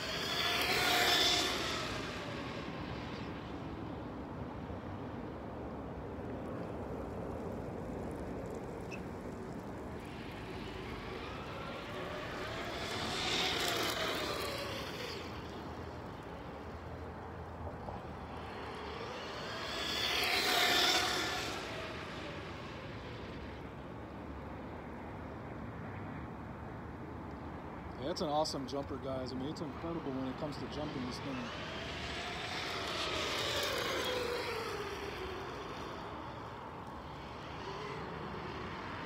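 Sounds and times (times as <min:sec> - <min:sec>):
electric motor whine: 0:00.0 - 0:03.9, 0:08.1 - 0:23.7, 0:29.8 - 0:39.0.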